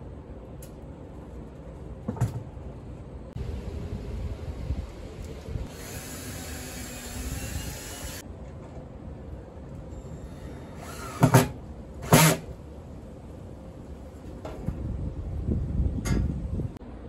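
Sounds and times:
cordless drill whirring: 5.7s - 8.2s, 10.3s - 11.5s.

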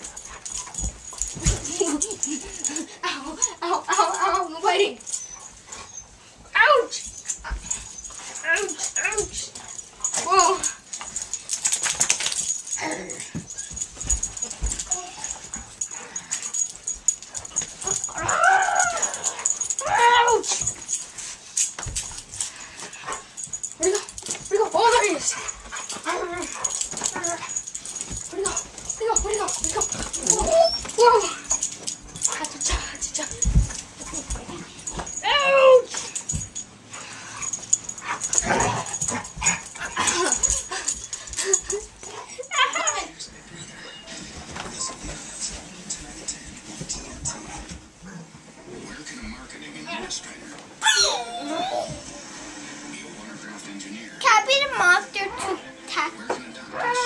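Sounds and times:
scuffling and knocks: 0.0s - 2.9s, 7.1s - 43.5s
dog crying: 17.8s - 20.6s, 26.0s - 31.6s, 42.4s - 43.1s, 50.8s - 52.0s.

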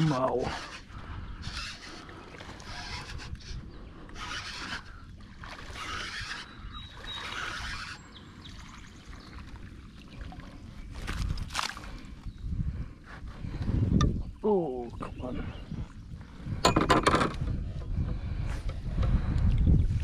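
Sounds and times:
fishing reel whirring: 0.0s - 8.2s
wind rumble on microphone: 0.0s - 20.0s.

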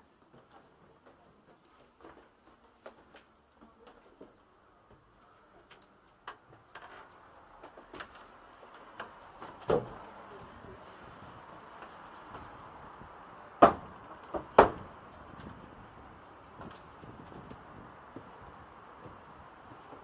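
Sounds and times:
footsteps on wooden stairs: 0.2s - 10.6s, 13.6s - 20.0s
loud wooden thump: 9.6s - 10.0s, 13.6s - 14.9s.

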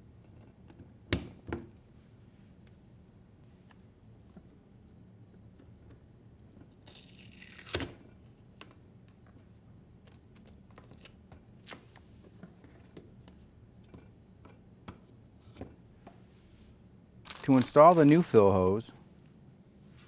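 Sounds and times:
tape peeled off plastic: 17.3s - 18.2s.

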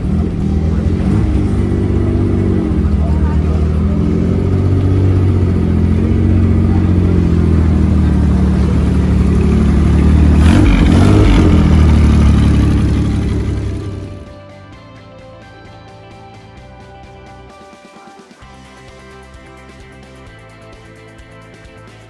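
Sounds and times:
sports car engine passing: 0.0s - 14.3s.

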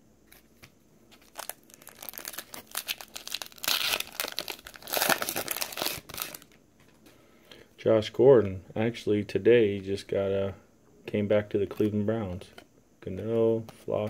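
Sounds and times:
foil wrapper crinkling: 1.2s - 6.6s.

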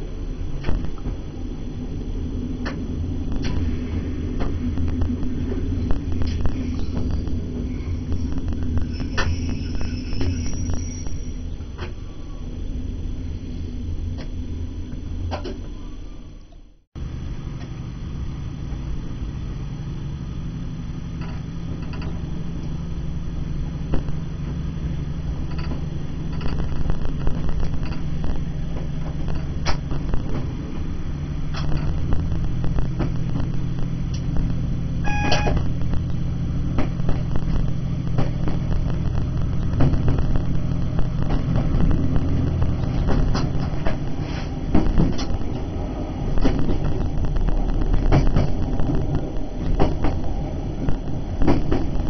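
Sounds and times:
diesel train engine running: 0.0s - 52.0s
brief high tone: 35.0s - 35.6s.

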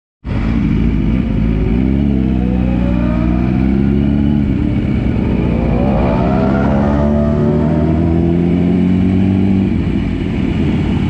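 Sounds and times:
motorcycle engine pulling away: 1.2s - 9.8s.

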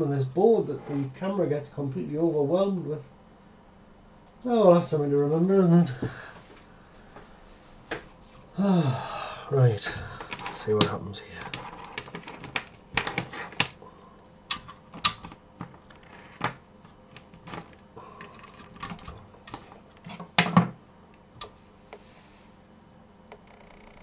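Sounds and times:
cables and plugs clicking: 10.0s - 21.6s.

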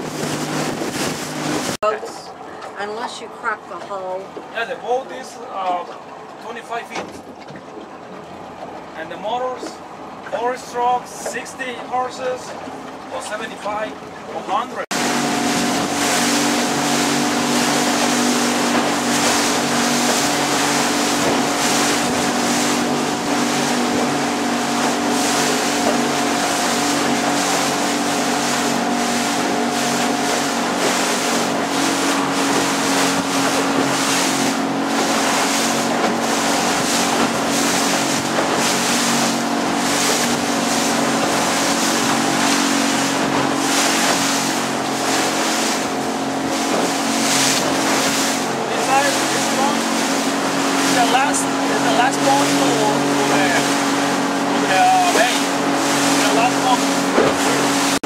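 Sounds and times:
wind on microphone: 0.0s - 1.8s, 15.0s - 48.5s
outboard motor droning: 0.0s - 58.0s
water rushing along hull: 0.0s - 58.0s.

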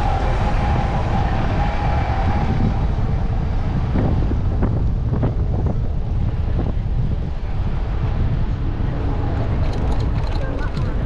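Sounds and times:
wind buffeting microphone: 0.0s - 11.0s
light clicks and rattles: 9.6s - 11.0s.

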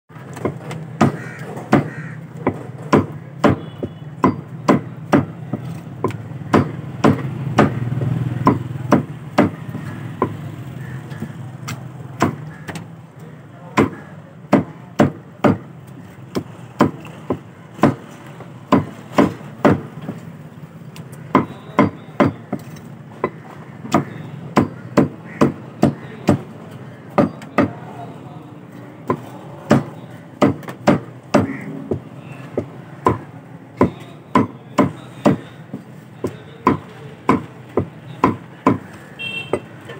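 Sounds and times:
cleaver chopping on wooden block: 0.3s - 10.4s, 12.2s - 12.8s, 13.8s - 15.7s, 16.3s - 18.1s, 18.7s - 20.2s, 21.3s - 26.4s, 27.1s - 27.8s, 29.1s - 35.5s, 36.2s - 39.7s.

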